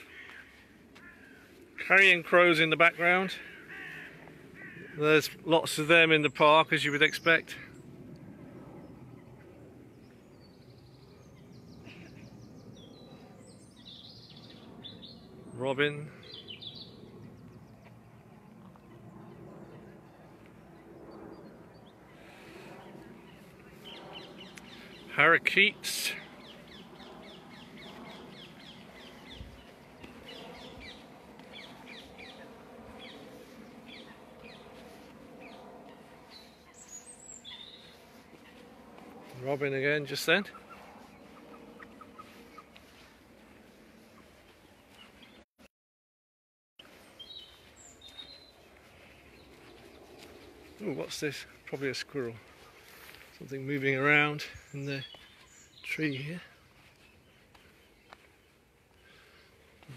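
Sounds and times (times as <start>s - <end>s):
parakeets screeching: 3.0s - 5.2s
low background hum: 6.2s - 45.4s
robin singing: 10.0s - 17.8s, 22.8s - 38.6s, 46.9s - 59.5s.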